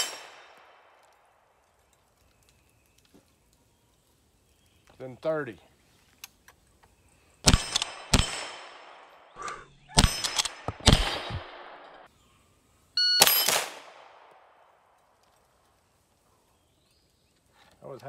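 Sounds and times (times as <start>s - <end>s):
rifle shots: 0.0s - 1.0s, 7.4s - 9.3s, 9.9s - 12.1s, 13.2s - 14.5s.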